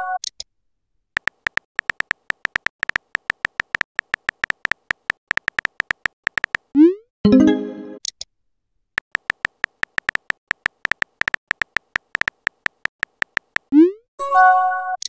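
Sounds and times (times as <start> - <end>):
phone keyboard clicks: 1.2 - 6.7, 9.0 - 13.8
message chime: 7.3 - 8.0.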